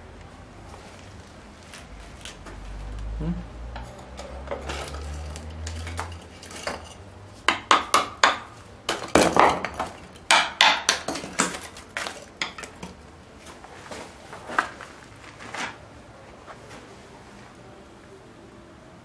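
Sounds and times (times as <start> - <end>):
broken chunks clattering: 3.9 - 13.0.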